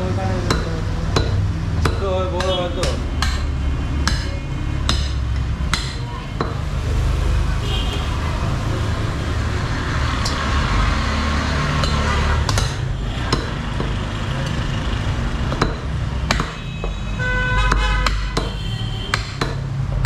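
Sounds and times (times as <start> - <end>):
cleavers chopping meat on wood: 0.3 - 6.8, 11.7 - 14.2, 15.3 - 20.0.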